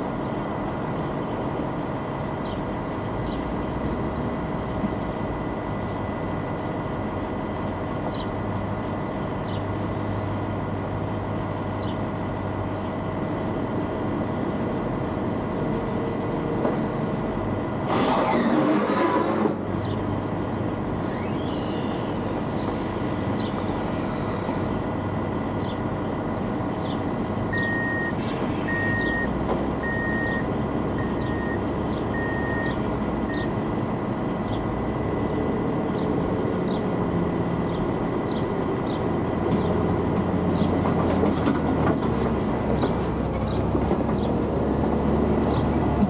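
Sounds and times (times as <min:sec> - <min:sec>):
diesel forklift engine running: 0:00.0 - 0:46.0
backup alarm beeping: 0:27.5 - 0:33.6.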